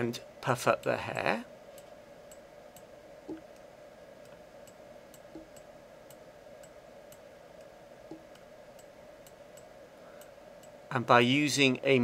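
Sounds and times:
soft regular ticking: 0.0 - 11.7
steady hum: 0.0 - 12.0
soft clicks: 1.7 - 10.8.

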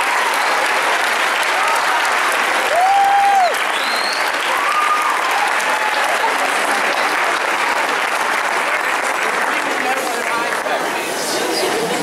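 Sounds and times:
whooping cheers: 0.0 - 6.4
audience applauding: 0.0 - 12.0
rising whistle: 3.7 - 4.4.

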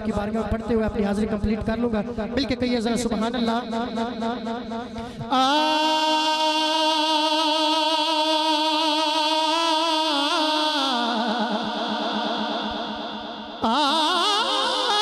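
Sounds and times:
man singing long wordless note: 3.2 - 15.0.

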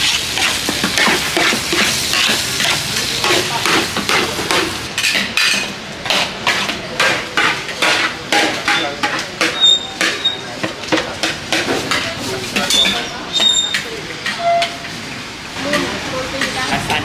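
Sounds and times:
food sizzling: 0.0 - 17.0
metal spatula scraping pan: 6.1 - 10.5, 11.2 - 14.9.

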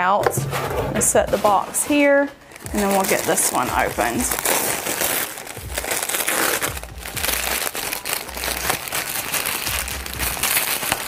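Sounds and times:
handling bumps: 0.0 - 3.3
packaging crinkling: 1.4 - 11.0.

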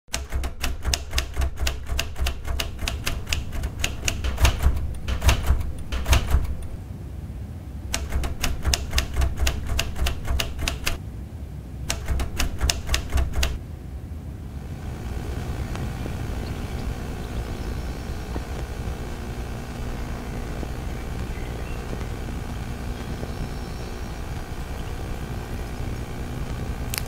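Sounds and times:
typewriter keys clacking: 0.1 - 6.8, 7.9 - 11.0, 11.9 - 13.6
low steady hum: 0.1 - 27.0.

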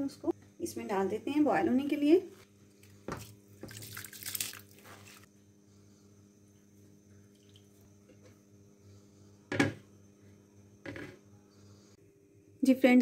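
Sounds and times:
faint steady hum: 0.0 - 13.0
rice splashing into water: 3.7 - 5.2.

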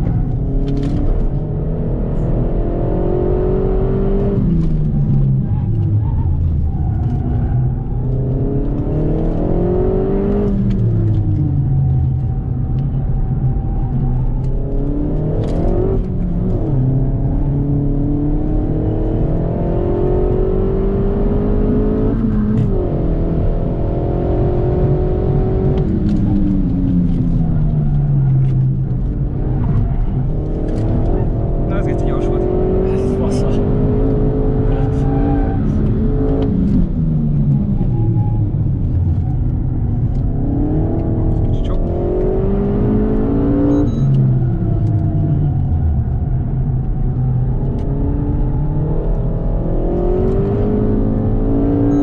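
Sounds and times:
car engine revving: 0.0 - 52.0.

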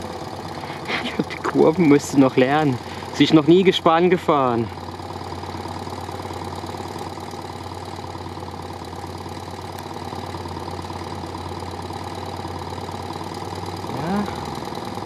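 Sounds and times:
motorcycle engine running at low revs: 0.0 - 15.0.

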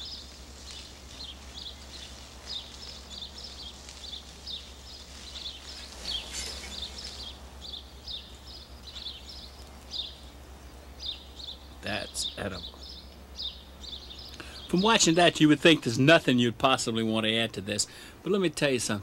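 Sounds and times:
steak sizzling with crackles: 0.0 - 10.2.

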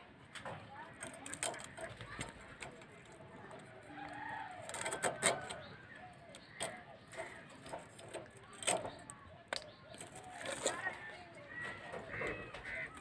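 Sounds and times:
bird calls: 3.4 - 13.0.

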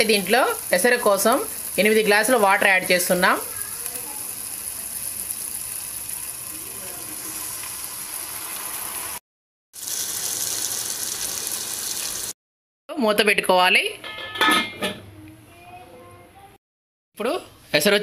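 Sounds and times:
spices sizzling in a hot pan: 0.0 - 9.2, 9.8 - 12.4
water pouring into a pan: 0.1 - 9.2, 9.8 - 12.4.

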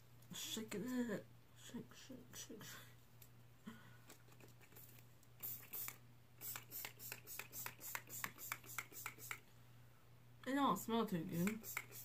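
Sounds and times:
spray bottle hissing puffs: 5.4 - 9.4, 11.4 - 12.0.

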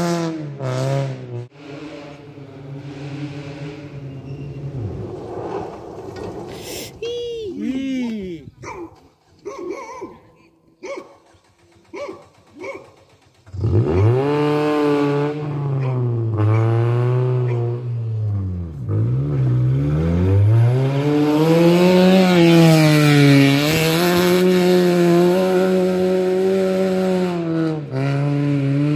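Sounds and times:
rally car engine revving: 0.0 - 7.0, 11.2 - 28.9
tyres hissing on loose dirt: 5.1 - 7.1.

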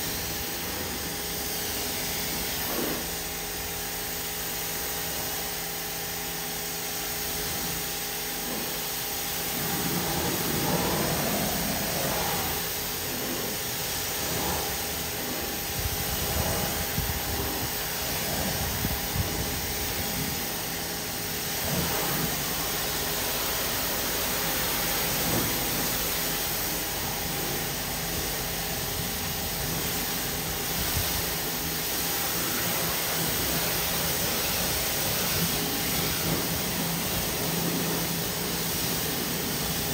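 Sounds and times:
pressure washer spray hissing: 0.0 - 39.9.

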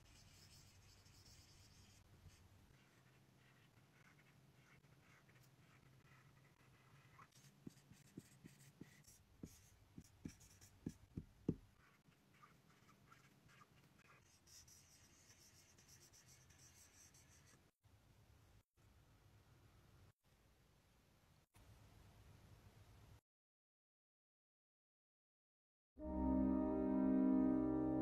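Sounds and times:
marker scratching on whiteboard: 0.0 - 17.7.

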